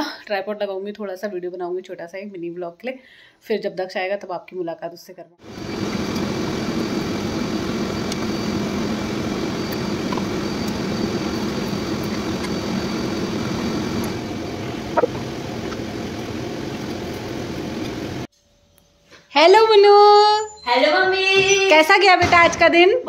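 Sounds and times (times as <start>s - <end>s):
machine motor drone: 5.4s - 18.3s
faint high whine: 5.5s - 18.3s.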